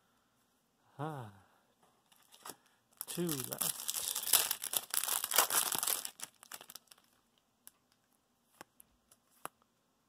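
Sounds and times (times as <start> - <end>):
foil wrapper crinkling and tearing: 2.2 - 7.8.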